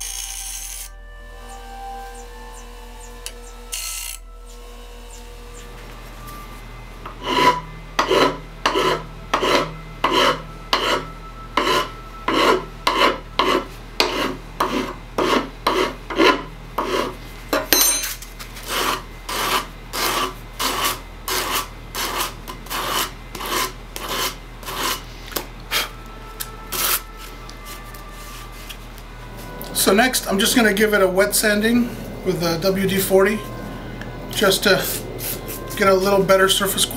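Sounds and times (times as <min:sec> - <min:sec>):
file rasping on aluminium: 0:07.1 - 0:17.2, 0:18.6 - 0:25.0.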